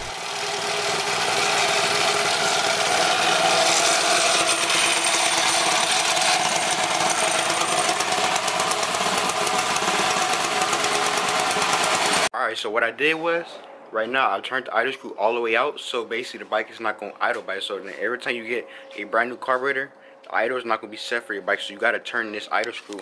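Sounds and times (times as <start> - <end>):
small engine idling: 0.0 - 12.3.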